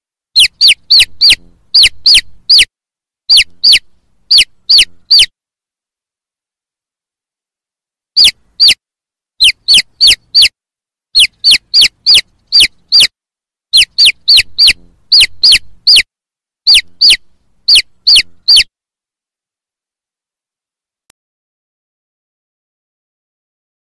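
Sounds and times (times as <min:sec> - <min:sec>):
chick peeping: 0:00.4 - 0:02.7, 0:03.3 - 0:05.3, 0:08.2 - 0:08.8, 0:09.4 - 0:10.5, 0:11.2 - 0:13.1, 0:13.7 - 0:16.1, 0:16.7 - 0:18.7.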